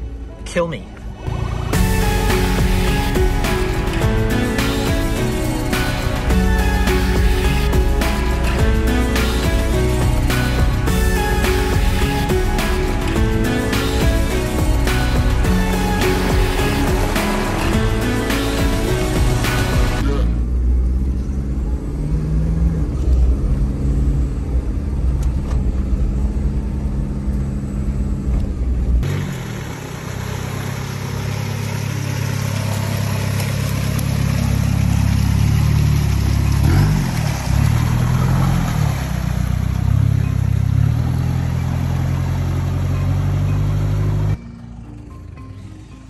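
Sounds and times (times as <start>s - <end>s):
diesel engine driving: 0.0s - 46.0s
water splashing: 29.1s - 43.4s.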